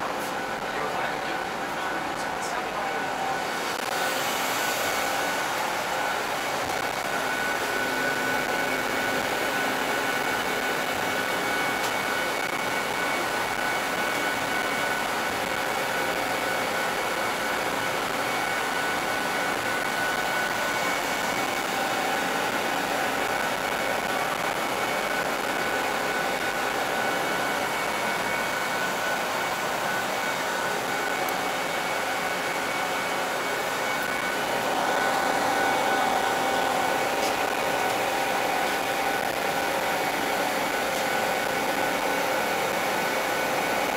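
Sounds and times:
cable car cabin whirring: 0:00.0 - 0:43.9
faint steady whine: 0:00.0 - 0:43.9.

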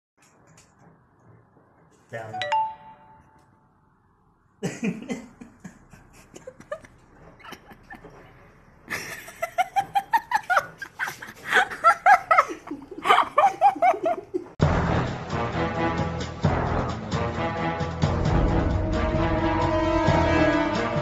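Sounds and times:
person laughing: 0:08.9 - 0:14.5.

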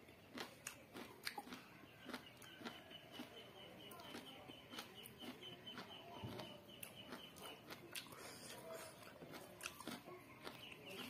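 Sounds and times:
chewing and lip smacks: 0:00.3 - 0:11.0.

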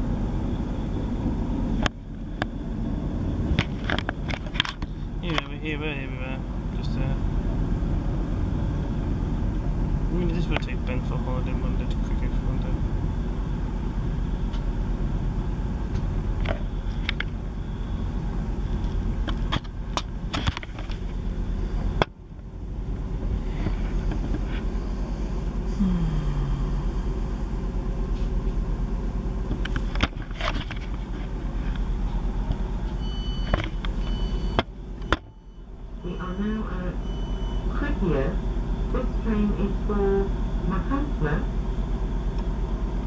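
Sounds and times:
diesel train engine running: 0:00.0 - 0:43.0
short high beeps: 0:33.0 - 0:37.7.

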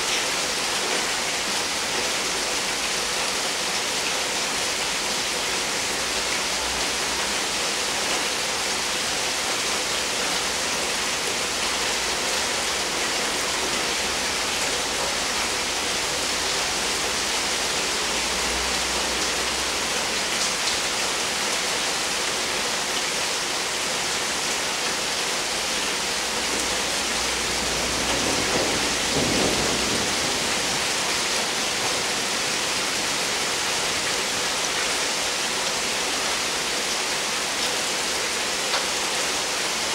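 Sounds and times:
heavy rain falling: 0:00.0 - 0:39.9
thunder rumbling: 0:27.6 - 0:31.9.

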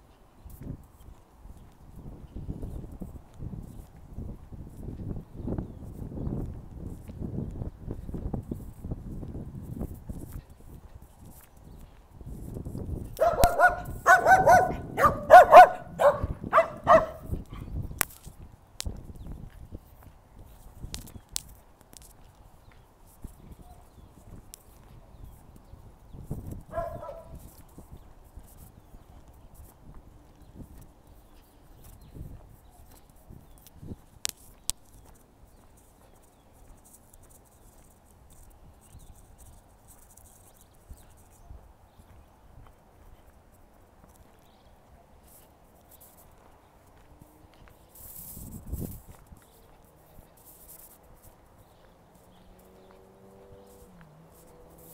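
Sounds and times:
soft footsteps: 0:00.0 - 0:54.9
dog barking: 0:13.2 - 0:17.7, 0:26.7 - 0:27.4.

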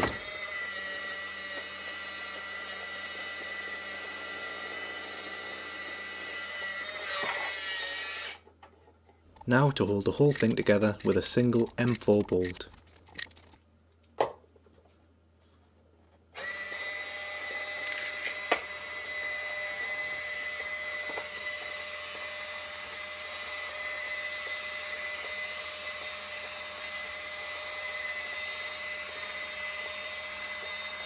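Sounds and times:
sharp clicks: 0:09.4 - 0:13.6
small motor whining: 0:16.4 - 0:31.0.

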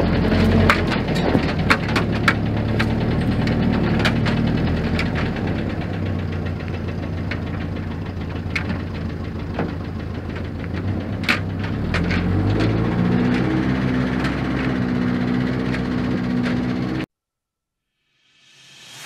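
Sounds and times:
petrol engine running at low revs: 0:00.0 - 0:17.1.

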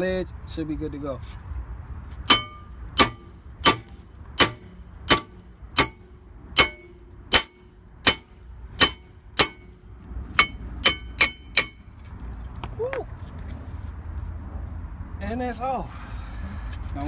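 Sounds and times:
sledgehammer striking metal: 0:02.2 - 0:12.0.

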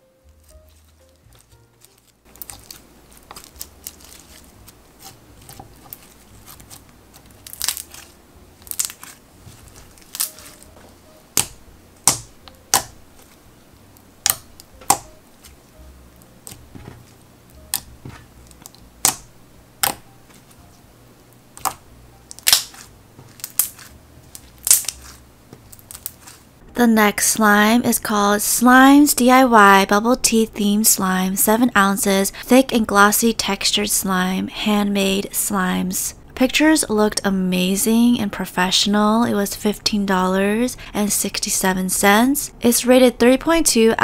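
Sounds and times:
slime squishing crackle: 0:00.3 - 0:13.4, 0:21.6 - 0:26.5.

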